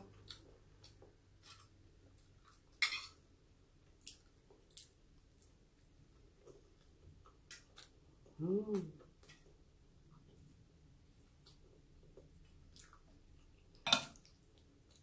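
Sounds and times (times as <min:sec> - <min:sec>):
chewing: 0:00.0 - 0:02.8, 0:03.9 - 0:05.6, 0:11.2 - 0:15.0.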